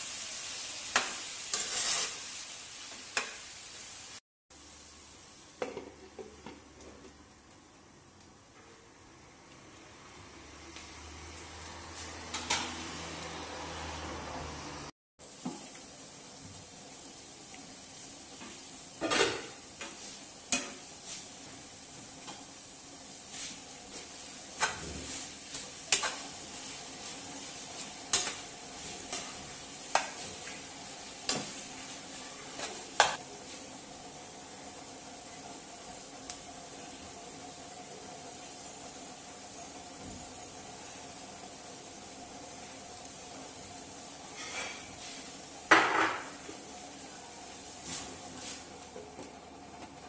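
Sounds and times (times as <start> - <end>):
stir-fry sizzling in a wok: 0.0 - 50.0
spatula scraping a pan: 1.0 - 2.5, 23.3 - 30.6, 44.3 - 45.4.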